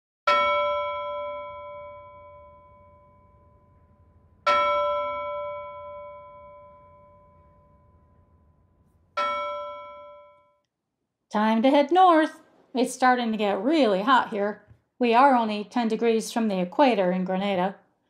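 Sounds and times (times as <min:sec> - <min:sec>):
bell ringing: 0:00.3 - 0:10.6.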